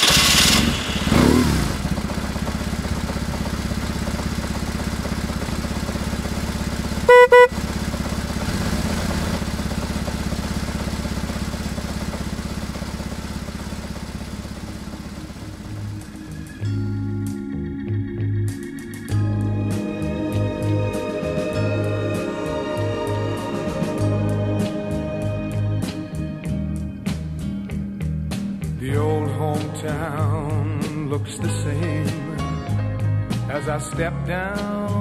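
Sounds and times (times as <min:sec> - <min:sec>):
motorcycle engine idling and revving: 0:00.0 - 0:21.0
motorcycle horn beeps: 0:07.0 - 0:08.0.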